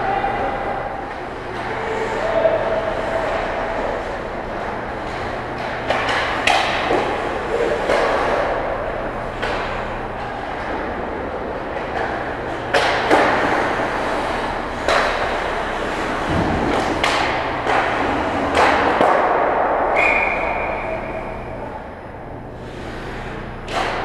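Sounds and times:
skates scraping ice: 0.2 - 21.2, 22.6 - 24.0
hockey sticks and puck cracking: 0.3 - 21.2, 23.7 - 24.0
referee's whistle: 20.0 - 21.3.

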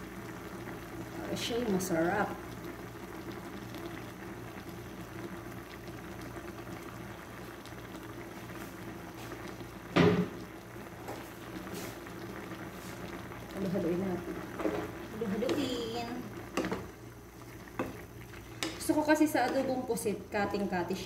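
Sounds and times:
liquid bubbling in a pan: 0.0 - 21.0
low steady hum: 8.8 - 21.0.

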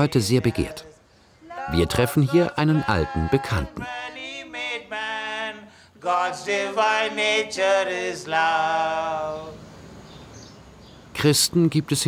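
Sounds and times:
person singing a chant: 0.0 - 9.6.

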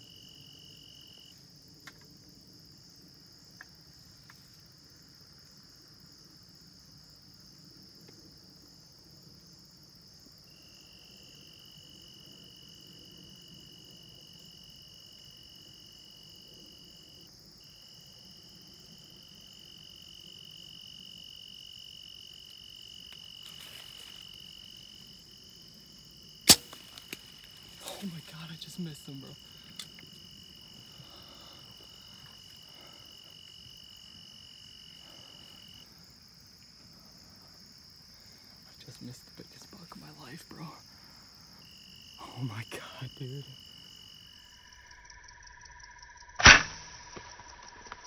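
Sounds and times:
insect chorus: 0.0 - 48.0
bow string snap: 26.4 - 27.3, 46.4 - 48.0.

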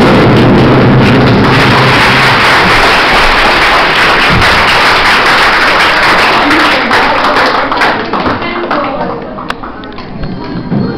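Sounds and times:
dance music with heavy beat: 0.0 - 5.4
children applauding and cheering: 0.0 - 10.8.

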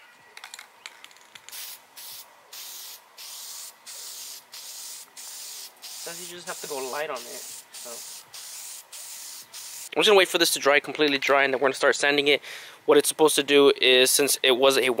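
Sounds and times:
aerosol can spraying hissing bursts: 1.5 - 9.9.

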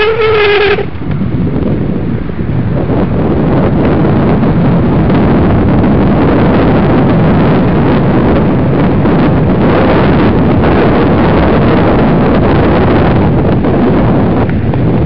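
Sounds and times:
skate wheels rolling on asphalt: 0.0 - 15.0
wind buffeting microphone: 0.0 - 15.0.

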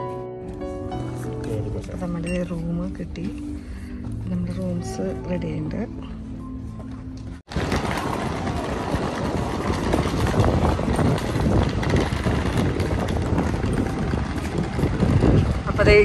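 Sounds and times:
wind buffeting microphone: 7.4 - 16.0.

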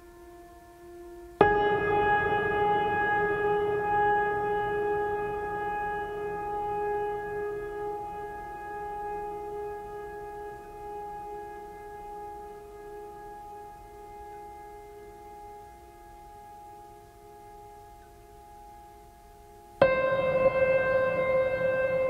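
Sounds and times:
held sustained chord: 0.0 - 22.0.

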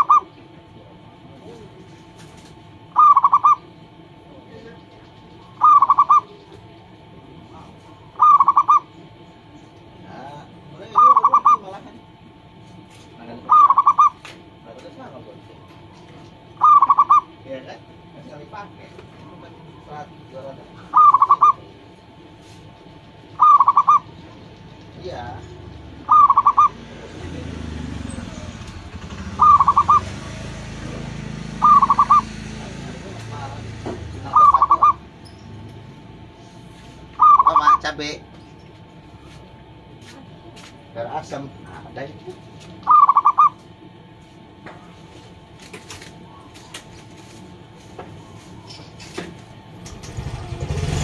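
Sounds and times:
dove cooing: 0.0 - 11.8, 13.2 - 14.4, 16.4 - 17.5, 19.2 - 38.0, 42.3 - 44.2
fainter lower bird calls: 2.9 - 3.8, 4.6 - 9.8, 10.8 - 11.8, 13.3 - 14.3, 16.6 - 17.4, 20.8 - 21.8, 22.4 - 26.9, 28.0 - 30.4, 31.5 - 32.4, 34.2 - 35.7, 36.4 - 38.7, 42.8 - 43.6.

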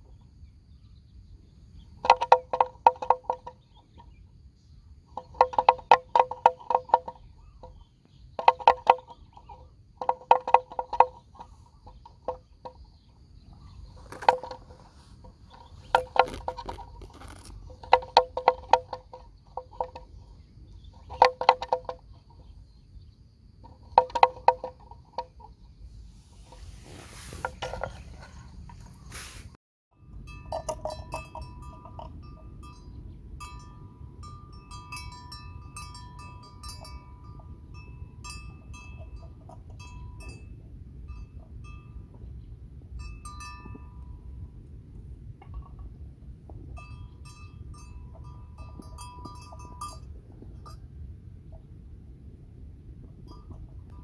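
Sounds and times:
animal bell clonking: 30.0 - 42.2, 43.0 - 44.4, 46.7 - 50.9.

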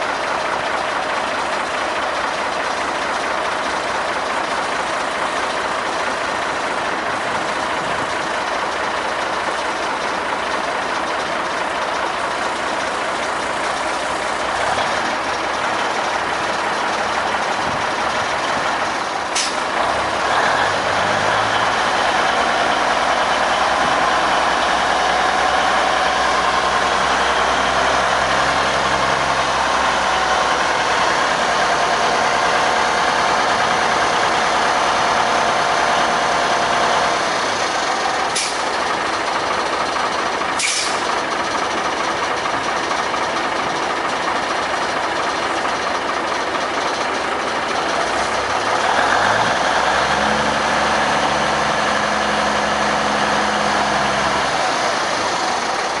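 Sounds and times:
diesel engine running: 0.0 - 56.0
sharp snap: 19.4 - 19.6, 38.4 - 38.6, 40.6 - 41.0.

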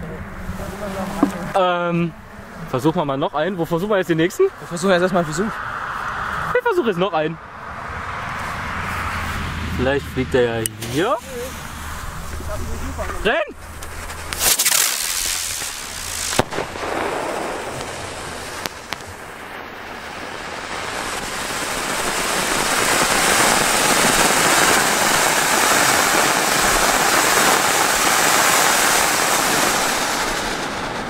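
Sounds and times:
firework fountain hissing: 0.3 - 1.8, 10.6 - 31.0
firework cracks: 1.0 - 1.6, 10.6 - 31.0.

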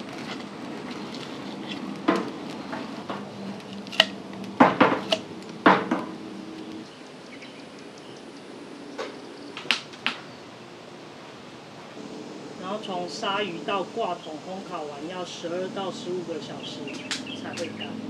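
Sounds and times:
fire poker knocking on logs and metal: 2.0 - 6.2.

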